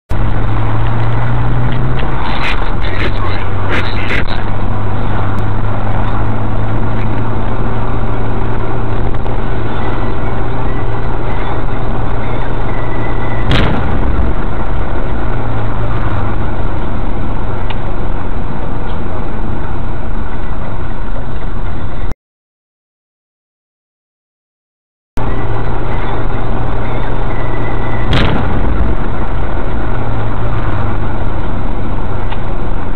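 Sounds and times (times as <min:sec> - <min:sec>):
car road and engine noise: 0:00.1 - 0:22.2, 0:25.2 - 0:32.9
explosion bang: 0:13.4 - 0:14.8, 0:28.1 - 0:29.2.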